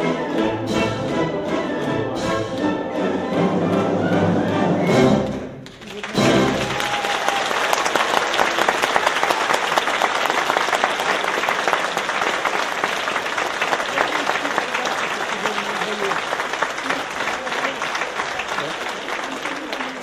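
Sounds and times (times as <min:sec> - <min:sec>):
audience applause: 0:05.6 - 0:20.0.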